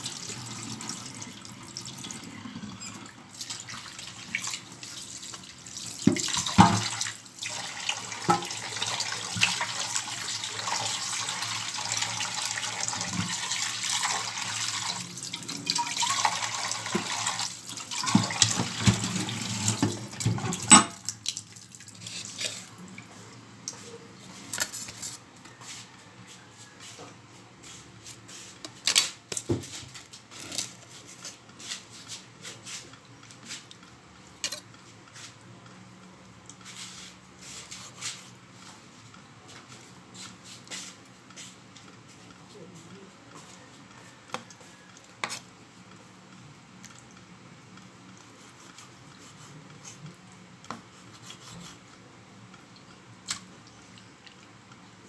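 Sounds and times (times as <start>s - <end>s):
tap water running into a pan: 3.3s - 21.8s.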